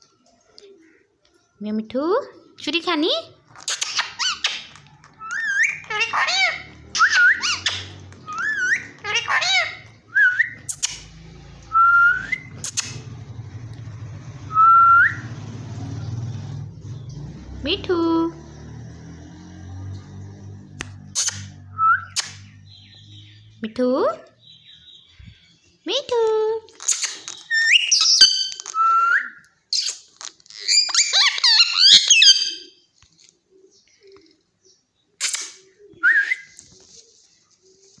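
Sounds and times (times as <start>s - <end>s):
parakeet whistling: 3.8s - 11.0s, 27.3s - 32.8s.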